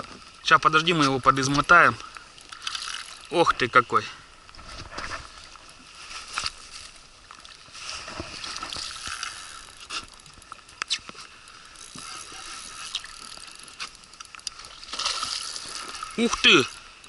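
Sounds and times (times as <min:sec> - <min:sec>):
fishing reel whirring: 0:01.4 - 0:03.4, 0:08.5 - 0:16.9
sharp reel clicks: 0:08.8 - 0:16.8.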